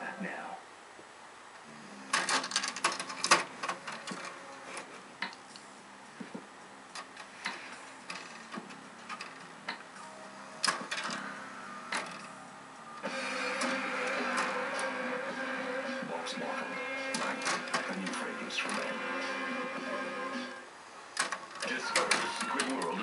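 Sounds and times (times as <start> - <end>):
disc tray motor whirring: 1.6 - 6.3, 6.9 - 23.0
paw tapping plastic disc tray: 21.2 - 23.0.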